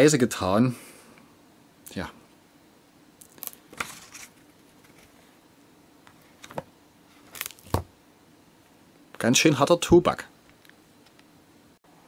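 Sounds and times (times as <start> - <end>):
book pages rustling: 3.4 - 5.3.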